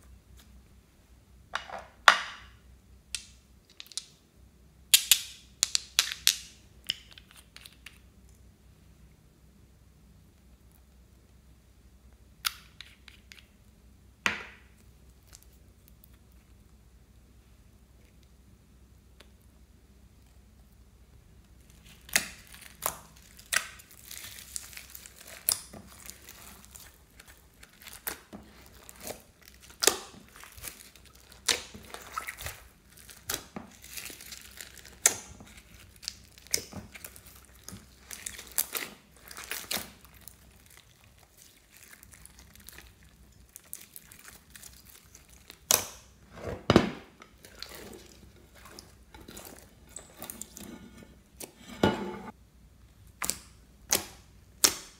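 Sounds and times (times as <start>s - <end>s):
slime squeezed with wet pops: 53.2s - 54.9s.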